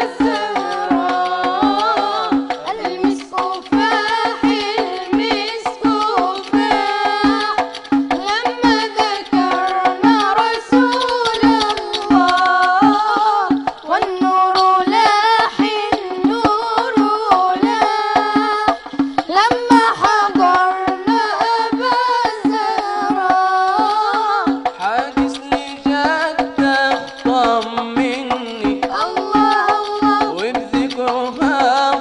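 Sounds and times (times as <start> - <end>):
young voices chanting: 0.0 - 7.7
hand percussion rhythm: 0.0 - 32.0.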